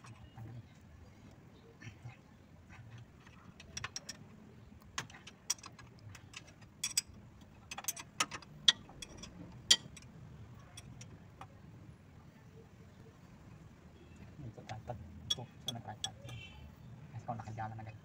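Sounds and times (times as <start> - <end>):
wrench clinking on metal bolts: 5.0 - 11.2, 15.2 - 16.5.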